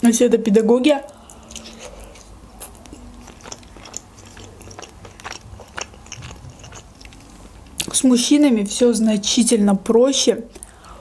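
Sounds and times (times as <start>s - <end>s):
person chewing food: 1.1s - 8.0s.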